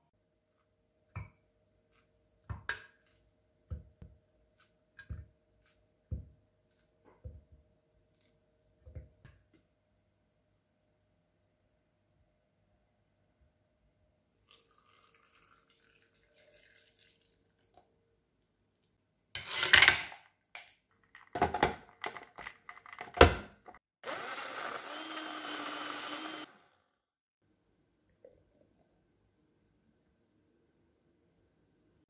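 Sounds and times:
blender whirring: 0:24.0 - 0:27.0.

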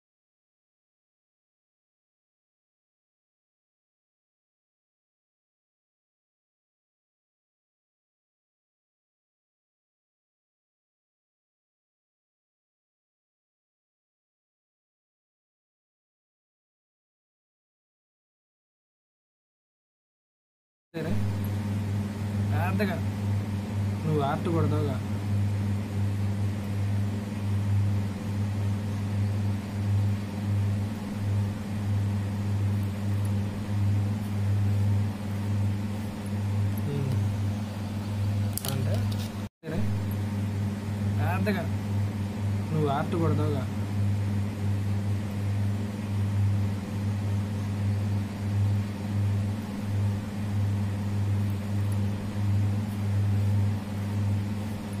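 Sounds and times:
fainter higher hum: 0:21.0 - 0:55.0
steady low hum: 0:21.0 - 0:55.0.

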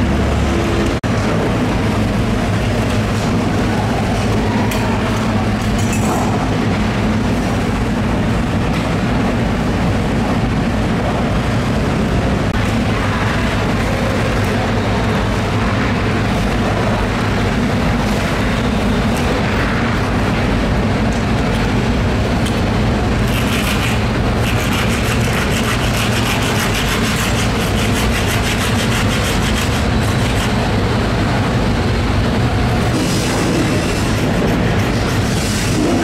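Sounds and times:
knife rasping through fish: 0:23.3 - 0:30.6.

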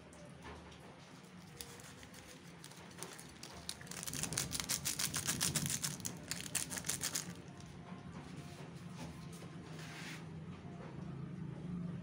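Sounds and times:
peanuts pattering into a bowl: 0:01.4 - 0:07.4.

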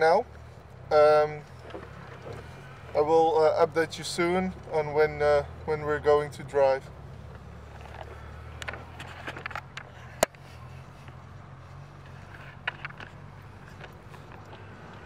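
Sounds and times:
car engine hum inside cabin: 0:00.0 - 0:15.0
light clicks and rattles: 0:07.3 - 0:10.4, 0:12.0 - 0:15.0.

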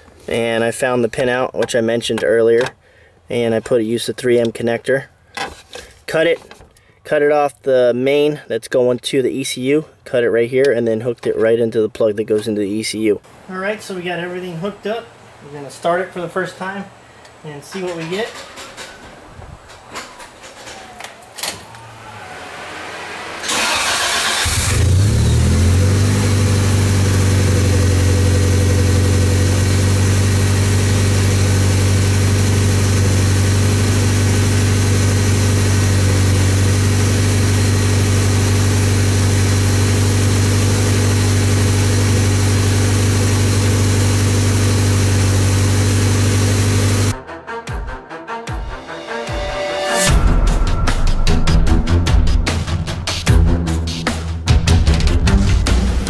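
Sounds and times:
car engine starter cranking: 0:19.9 - 0:27.0
car engine idling: 0:21.2 - 0:47.2.

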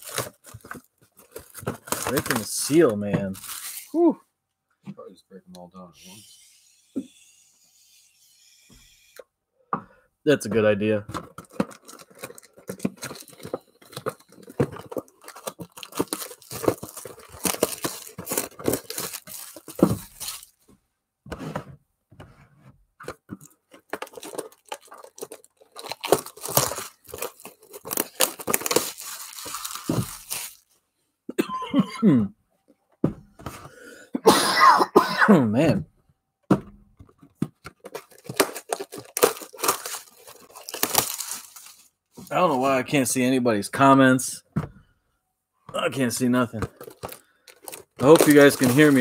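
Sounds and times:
shrink-wrap and cardboard tearing: 0:00.0 - 0:04.0, 0:11.2 - 0:20.6, 0:23.1 - 0:30.7, 0:37.6 - 0:42.8, 0:46.0 - 0:49.0.

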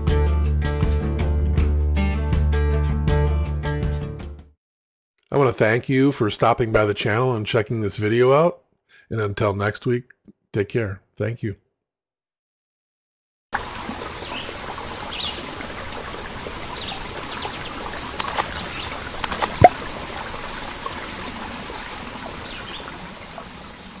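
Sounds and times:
running water: 0:13.6 - 0:24.0
sharp splash: 0:18.1 - 0:19.9.

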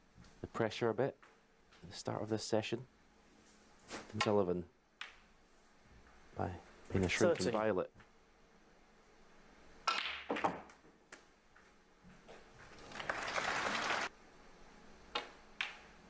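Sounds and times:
snooker balls clicking: 0:09.8 - 0:11.3.

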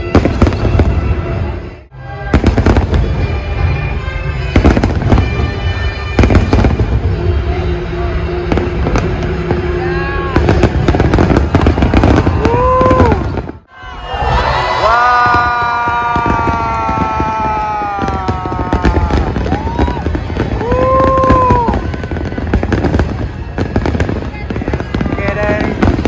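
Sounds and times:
music with held notes: 0:00.0 - 0:12.0
fireworks bursting bangs: 0:00.0 - 0:26.0.

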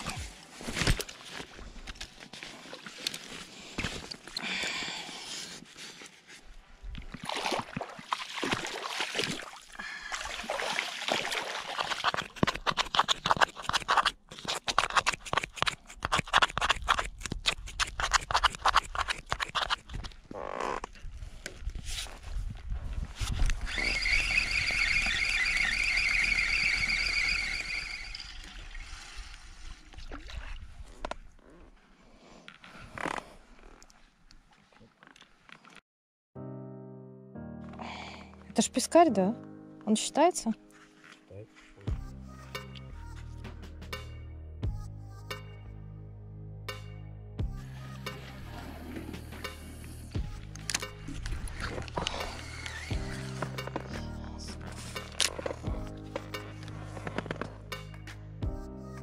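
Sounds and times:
water splashing around wading feet: 0:07.0 - 0:14.1
high wavering whine: 0:23.7 - 0:28.6.

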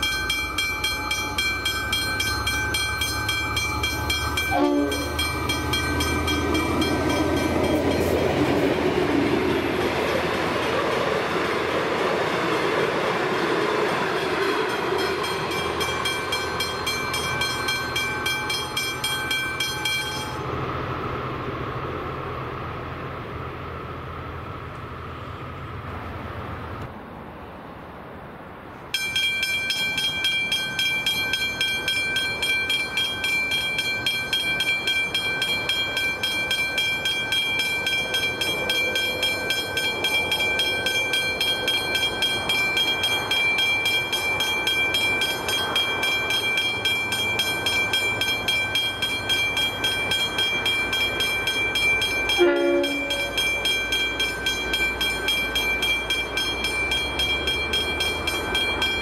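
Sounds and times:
level crossing bell ringing: 0:00.0 - 0:08.3, 0:14.7 - 0:20.4, 0:29.0 - 0:59.0
train horn blast: 0:04.5 - 0:05.3, 0:52.4 - 0:53.4.

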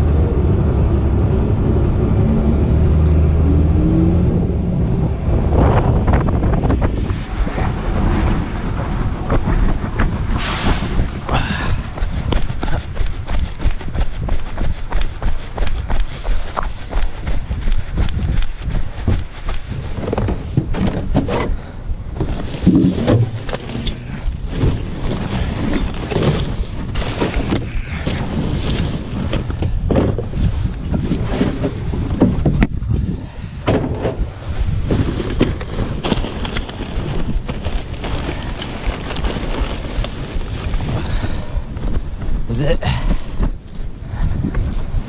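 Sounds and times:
wind rumble on microphone: 0:00.0 - 0:45.0
footsteps on grass: 0:11.7 - 0:20.6
plastic bags rustling: 0:22.2 - 0:29.5, 0:34.9 - 0:41.4.

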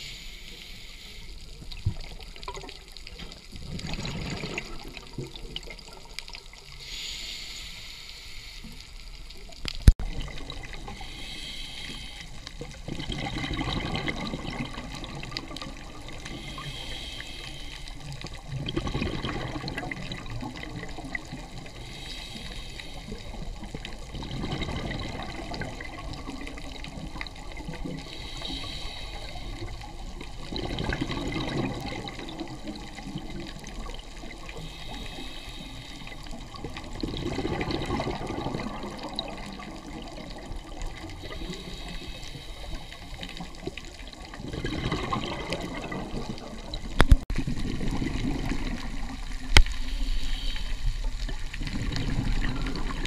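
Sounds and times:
diver inhaling through regulator: 0:00.0 - 0:01.5, 0:06.8 - 0:08.8, 0:10.9 - 0:12.5, 0:16.2 - 0:18.1, 0:21.7 - 0:23.4, 0:28.0 - 0:29.8, 0:34.6 - 0:36.4, 0:41.1 - 0:43.6, 0:49.8 - 0:51.1
exhaled bubbles rushing: 0:01.6 - 0:06.8, 0:10.0 - 0:11.1, 0:12.5 - 0:17.0, 0:18.0 - 0:21.9, 0:23.1 - 0:28.1, 0:29.4 - 0:35.1, 0:36.1 - 0:49.7, 0:51.0 - 0:53.0.

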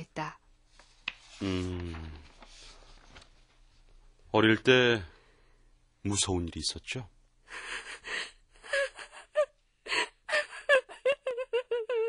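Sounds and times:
woman sobbing: 0:07.5 - 0:12.0
woman wailing: 0:10.3 - 0:12.0.

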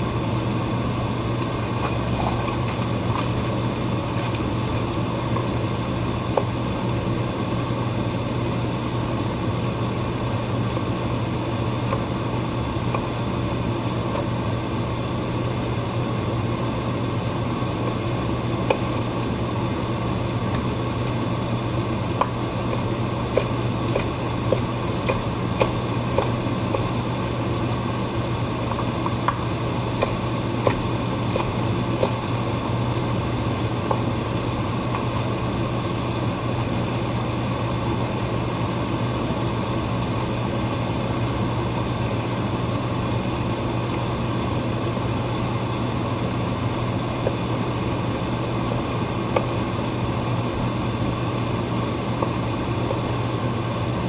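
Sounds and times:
steady low hum: 0:00.0 - 0:54.0
knife chopping on wooden board: 0:22.2 - 0:27.0, 0:28.7 - 0:32.2.

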